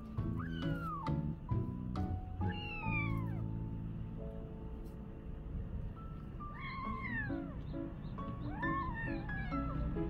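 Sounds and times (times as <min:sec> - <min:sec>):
soft background music: 0:00.0 - 0:10.0
cat meowing: 0:00.3 - 0:01.2, 0:02.4 - 0:03.6, 0:06.4 - 0:07.7, 0:08.5 - 0:10.0.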